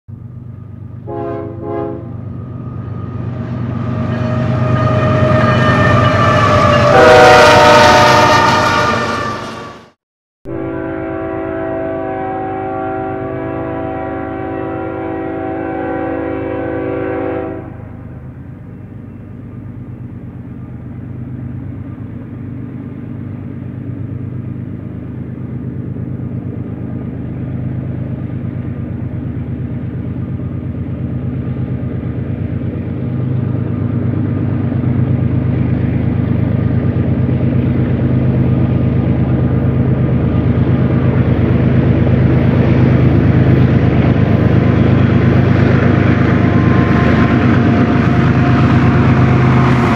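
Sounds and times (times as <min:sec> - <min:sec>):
low rumble of train: 0:00.1 - 0:49.9
distant locomotive horn chord: 0:00.6 - 0:19.8, 0:44.0 - 0:49.9
locomotive horn blasts: 0:01.0 - 0:02.3, 0:03.8 - 0:09.9, 0:10.5 - 0:18.0, 0:45.8 - 0:49.9.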